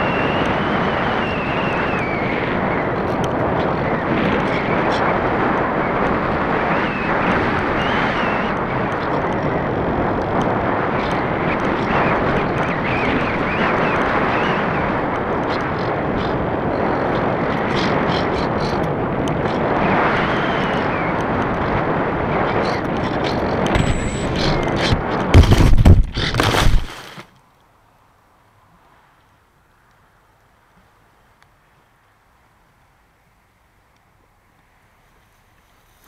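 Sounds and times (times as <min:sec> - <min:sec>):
wind noise over microphone: 0:00.0 - 0:27.2.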